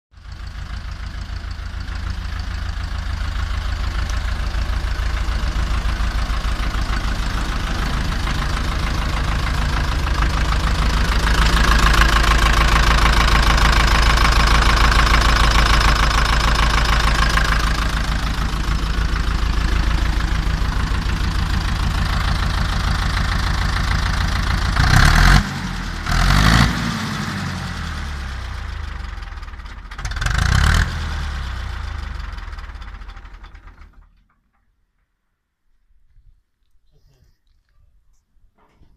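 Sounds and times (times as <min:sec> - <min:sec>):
tractor diesel engine idling: 0:00.1 - 0:34.9
engine revving: 0:04.1 - 0:29.4, 0:30.0 - 0:32.6.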